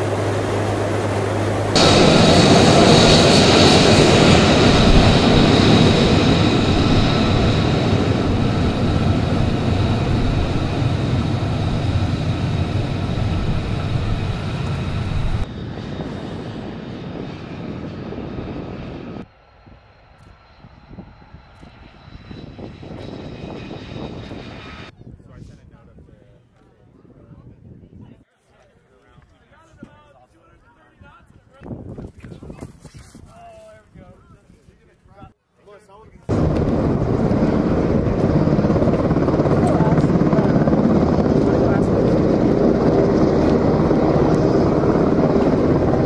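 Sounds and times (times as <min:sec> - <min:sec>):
jet engine roar with high whine: 0:00.0 - 0:24.9, 0:36.3 - 0:46.0.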